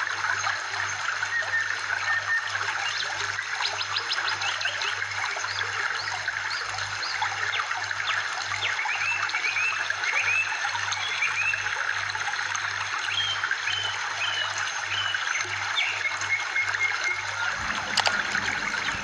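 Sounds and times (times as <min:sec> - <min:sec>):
water trickling: 0:17.4 - 0:19.0.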